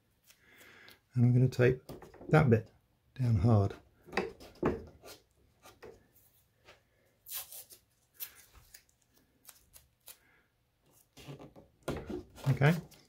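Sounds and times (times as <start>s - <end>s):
tape rustles and scrapes: 4.4s - 13.0s.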